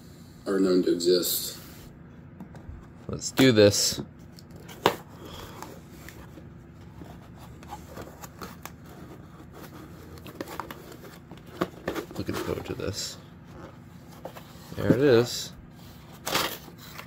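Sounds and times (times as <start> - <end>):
cardboard flaps rustling and scraping: 4.6 - 17.0.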